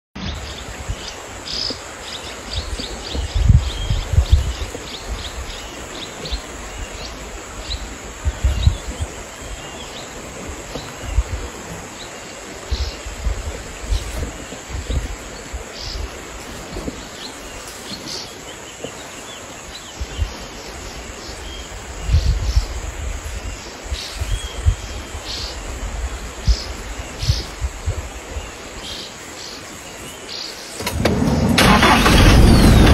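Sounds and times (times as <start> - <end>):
low microphone rumbles: 0.2 - 18.1, 19.8 - 28.8, 30.9 - 32.9.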